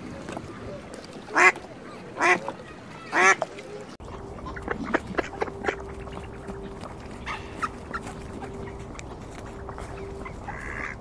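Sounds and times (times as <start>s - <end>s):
duck quacking: 1.3s - 3.5s, 10.4s - 11.0s.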